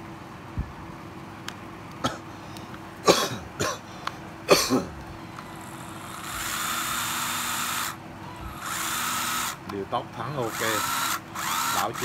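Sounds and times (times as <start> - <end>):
cordless screwdriver motor: 5.3 - 12.0.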